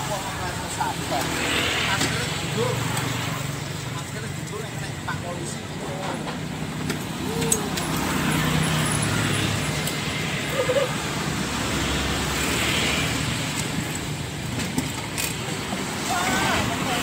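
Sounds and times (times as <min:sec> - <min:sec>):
traffic passing: 0:00.0 - 0:17.0.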